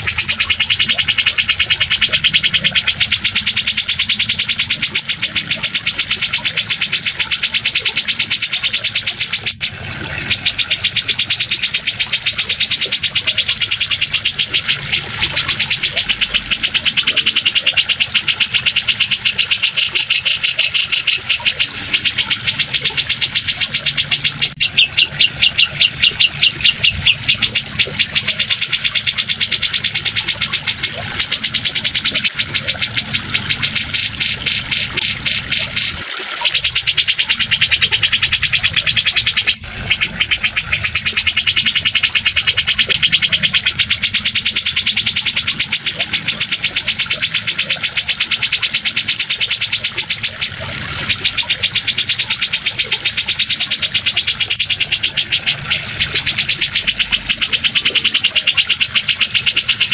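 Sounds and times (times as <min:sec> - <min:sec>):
bulbul chattering trills: 0:00.0 - 0:59.9
running water: 0:00.0 - 0:59.9.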